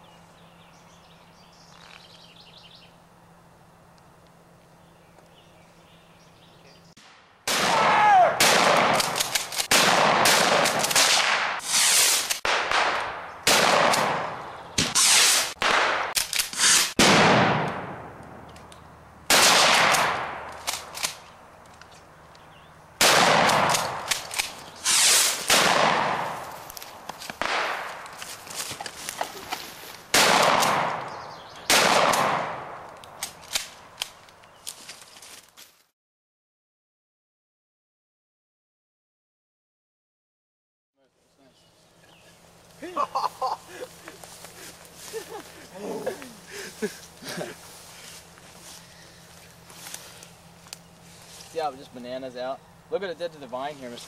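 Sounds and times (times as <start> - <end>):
echoing gunshots: 7.0 - 18.4, 19.3 - 21.2, 23.0 - 26.5, 27.4 - 28.1, 30.1 - 32.8.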